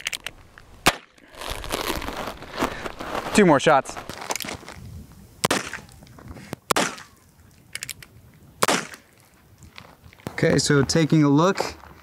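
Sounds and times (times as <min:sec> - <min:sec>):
revolver gunshots: 0:05.4 - 0:05.8, 0:06.7 - 0:07.1, 0:08.6 - 0:09.1.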